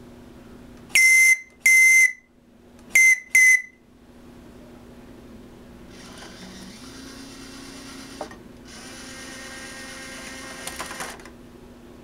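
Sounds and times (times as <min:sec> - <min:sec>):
shrill whistle blasts: 0:01.0 - 0:02.3, 0:03.0 - 0:03.8.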